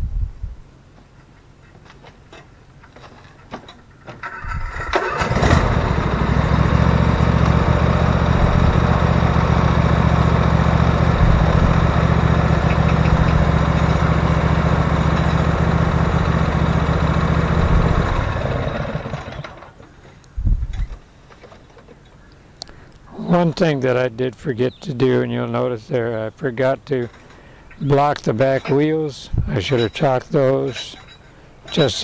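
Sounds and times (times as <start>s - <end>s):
garden tractor engine running: 3.9s - 20.2s.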